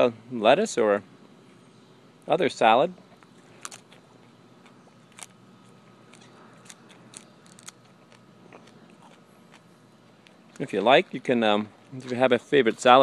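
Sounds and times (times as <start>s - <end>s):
person chewing leaves: 2.9s - 12.7s.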